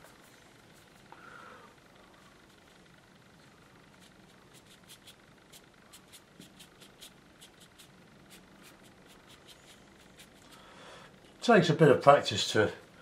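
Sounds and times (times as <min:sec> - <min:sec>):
brush dabbing on paper: 0:00.0 - 0:01.1, 0:03.9 - 0:10.6.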